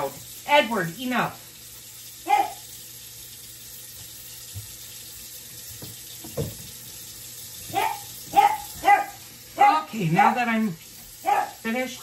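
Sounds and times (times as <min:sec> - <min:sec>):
tap running into sink: 0:03.8 - 0:08.9.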